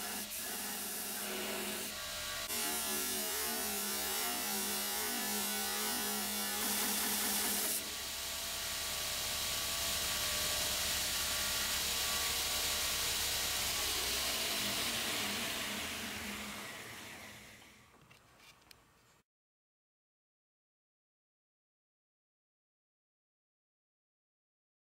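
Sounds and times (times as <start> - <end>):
belt grinder grinding metal: 0.0 - 17.7.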